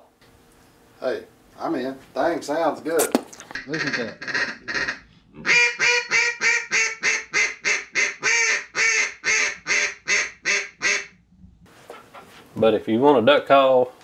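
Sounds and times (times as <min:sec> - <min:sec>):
duck call quacks: 0:03.6 - 0:11.1.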